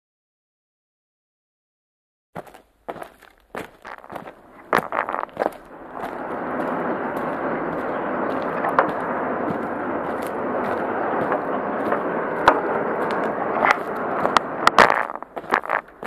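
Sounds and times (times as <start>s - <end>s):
bicycle tyres rolling: 2.4s - 16.0s
bicycle knocks and rattles: 11.2s - 16.0s.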